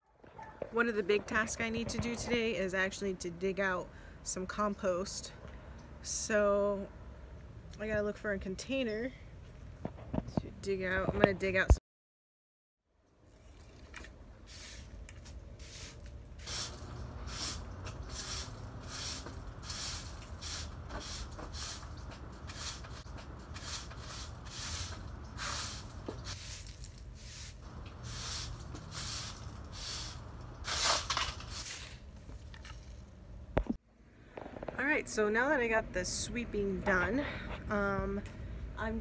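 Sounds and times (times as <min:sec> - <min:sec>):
broom sweeping hard floor: 0:14.4 - 0:32.0.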